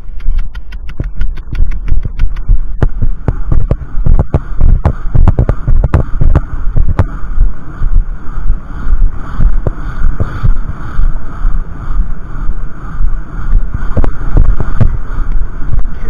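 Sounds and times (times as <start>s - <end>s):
heavy wind on microphone: 0.0s - 16.0s.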